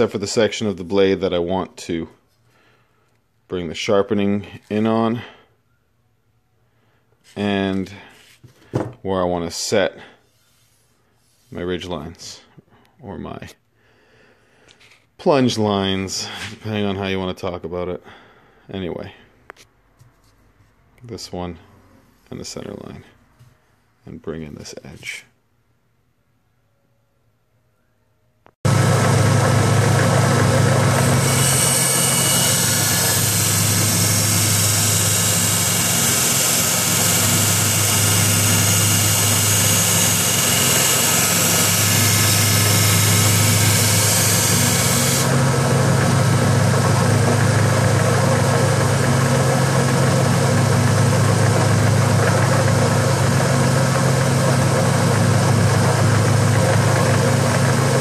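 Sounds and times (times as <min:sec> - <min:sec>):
blade grinding on sander belt: 0:28.7 - 0:48.0
belt sander humming: 0:28.7 - 0:58.0.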